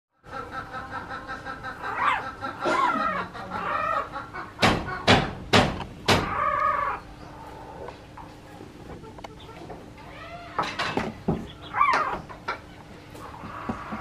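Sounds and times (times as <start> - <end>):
sharp knocks: 4.6 - 6.4
puppies whining and squealing: 11.4 - 12.3.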